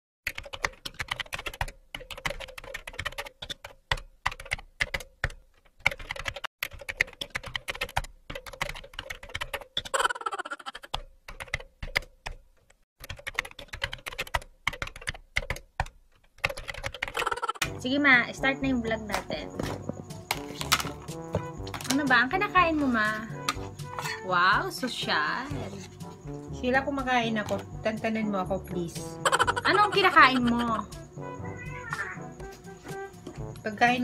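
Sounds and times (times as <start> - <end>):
keyboard typing clicks: 0.3 - 12.4, 13.0 - 17.6.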